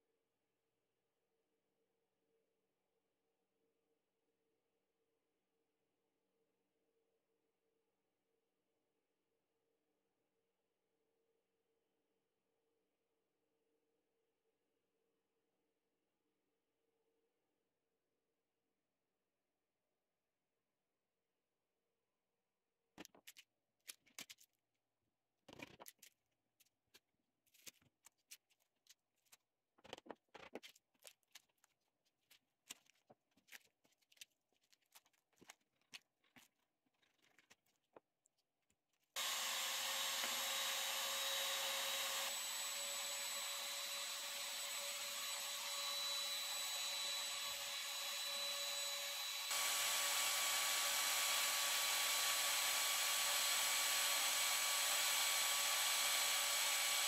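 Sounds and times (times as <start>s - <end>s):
trim router cutting resin: 39.2s - 57.0s.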